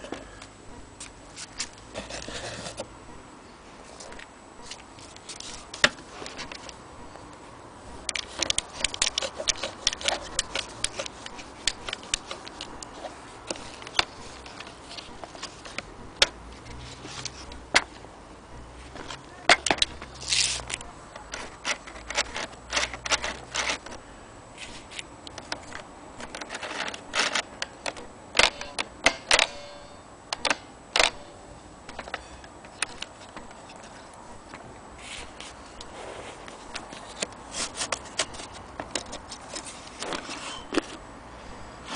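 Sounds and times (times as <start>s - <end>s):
camera clicking and knocking: 8.1s - 16.4s.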